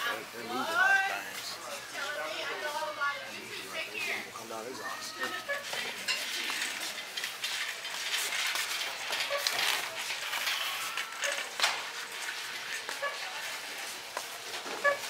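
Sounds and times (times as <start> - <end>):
items clattering and clinking: 5.5 - 15.0.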